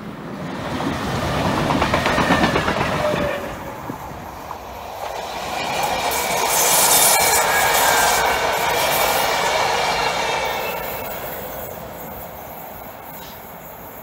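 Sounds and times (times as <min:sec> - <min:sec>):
electric train rolling past: 0:00.0 - 0:14.0
high wheel squeal: 0:03.0 - 0:14.0.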